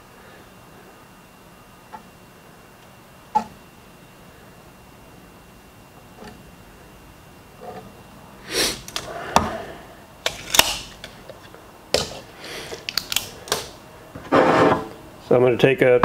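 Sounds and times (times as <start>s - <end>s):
metal scrapes: 14.3s - 15.0s.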